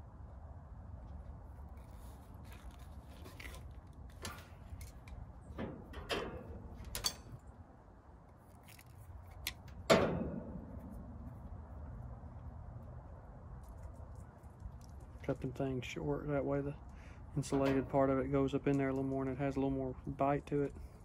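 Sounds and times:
wire cutters snipping: 8.5 - 9.9.

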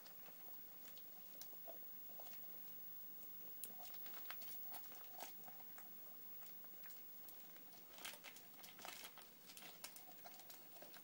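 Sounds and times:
dog chewing and gnawing: 3.6 - 11.0.

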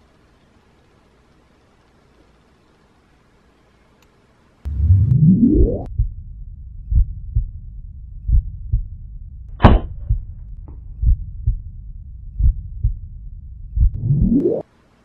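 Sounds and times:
heartbeat thumps: 4.7 - 14.4
air pistol shot: 9.6 - 10.0.

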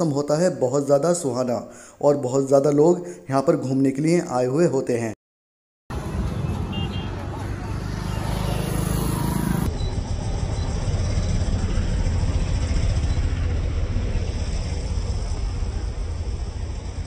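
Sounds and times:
motorcycles riding past: 5.9 - 16.1
low traffic rumble: 5.9 - 17.0.

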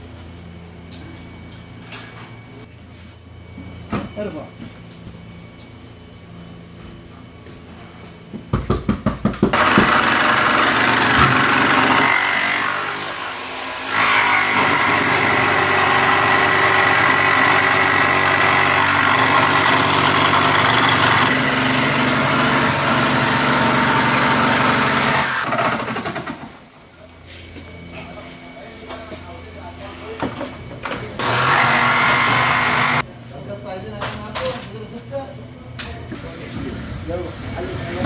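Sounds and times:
power saw cutting panel: 9.5 - 26.4, 31.2 - 33.0.

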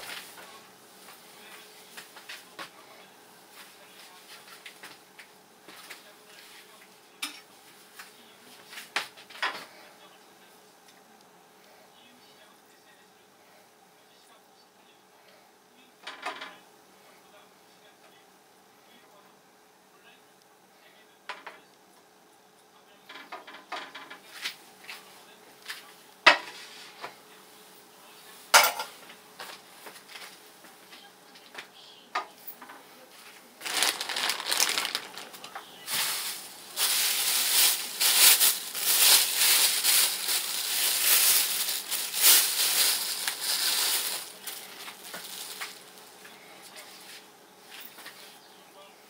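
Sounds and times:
food sizzling: 35.8 - 46.1.

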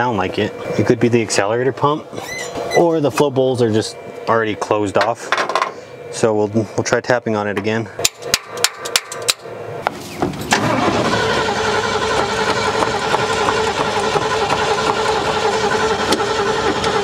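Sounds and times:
starter cranking engine: 10.4 - 17.0.

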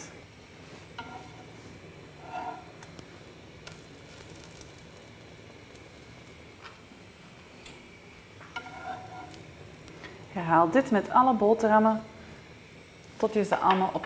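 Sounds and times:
bread sizzling in butter: 0.3 - 14.0.

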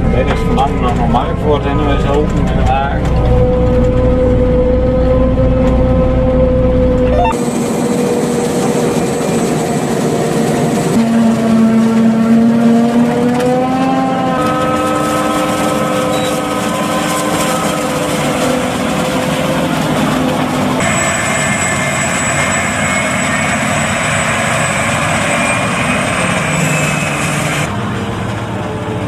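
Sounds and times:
forage harvester machine whine: 0.0 - 29.0
tractor running: 0.0 - 29.0.

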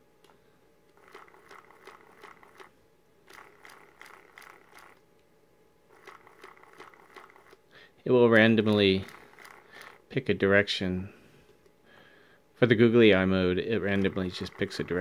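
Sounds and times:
stepper motors clicking and whirring: 1.0 - 2.7, 3.3 - 5.0, 5.9 - 7.6, 8.3 - 10.0.

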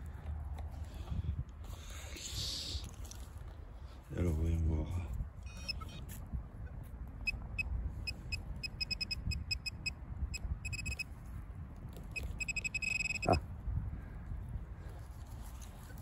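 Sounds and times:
metal detector pinpointer beeping: 7.2 - 11.1, 12.1 - 13.4.

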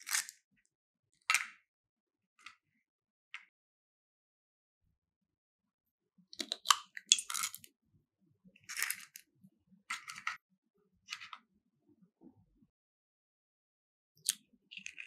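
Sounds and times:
crackly clicking and scraping: 0.0 - 0.4, 8.6 - 10.4, 14.2 - 15.0.

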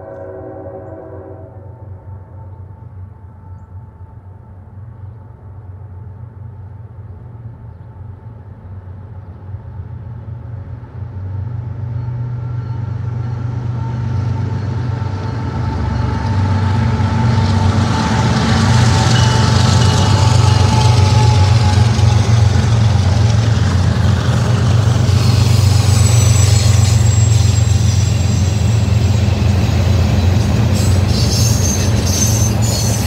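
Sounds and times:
diesel locomotive engine rumble: 0.0 - 33.0.

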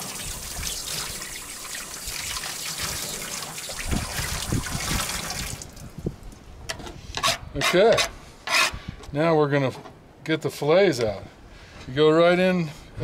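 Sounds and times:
tap water running into sink: 0.0 - 5.9.

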